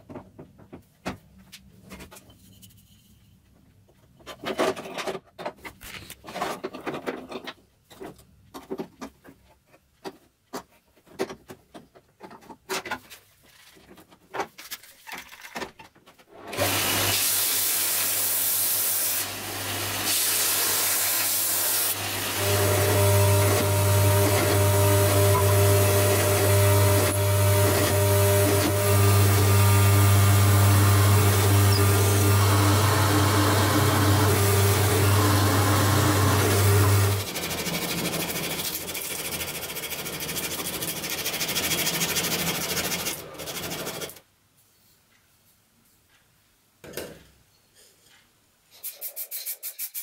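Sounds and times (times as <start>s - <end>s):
drill press motor humming: 19.2s - 38.8s
sandpaper rubbing on wood: 48.8s - 50.0s.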